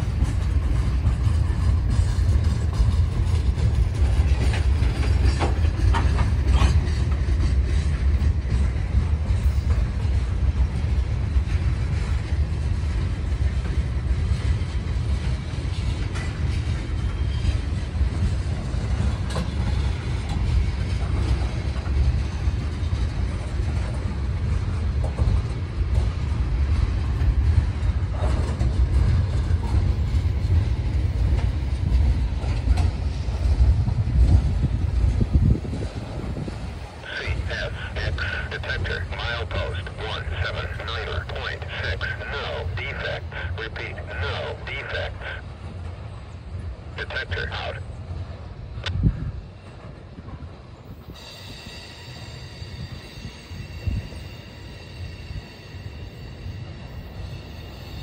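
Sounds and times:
train wheels clicking: 0.0s - 37.0s
train rumbling over rails: 0.0s - 58.0s.

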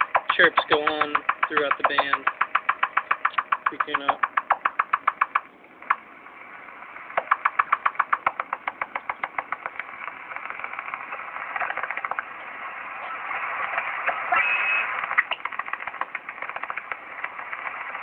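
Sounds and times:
radio static: 0.0s - 2.4s, 9.1s - 18.0s
rapid radio interference chirps: 0.0s - 18.0s
radio hiss: 9.6s - 18.0s.

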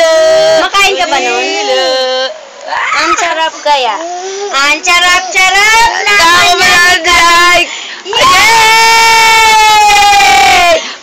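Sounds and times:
young voices shouting: 5.1s - 10.8s.

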